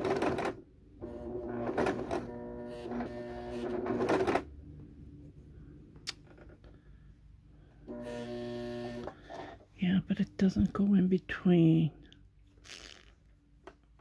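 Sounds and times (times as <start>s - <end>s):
sewing machine running: 0.0s - 4.5s, 7.9s - 9.5s.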